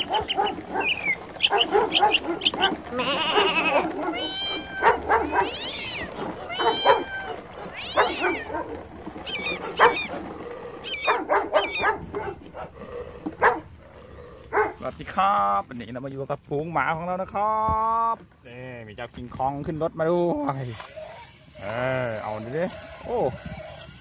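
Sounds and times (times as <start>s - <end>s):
toy dogs barking: 0.0s - 14.8s, 20.6s - 24.0s.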